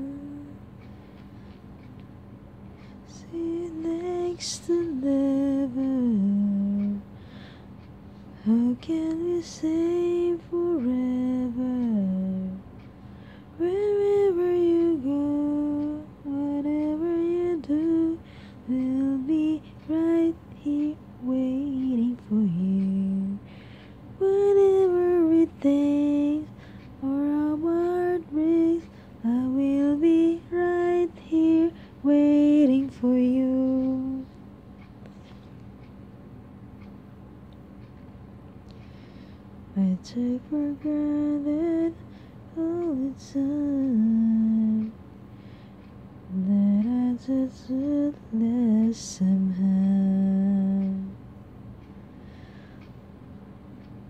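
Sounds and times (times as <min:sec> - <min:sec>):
woman singing unaccompanied: 0:00.0 - 0:00.6, 0:02.8 - 0:07.2, 0:08.3 - 0:12.7, 0:13.6 - 0:34.4, 0:39.7 - 0:45.0, 0:46.3 - 0:51.2
faint steady hum: 0:00.0 - 0:54.0.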